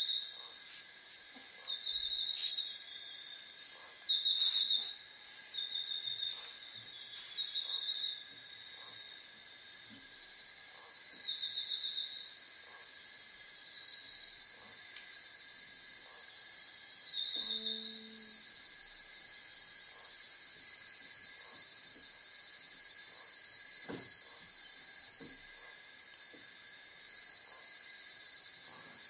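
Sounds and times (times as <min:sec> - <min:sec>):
insects buzzing: 0:00.0 - 0:10.5, 0:13.0 - 0:21.0
insect trills: 0:00.0 - 0:23.8.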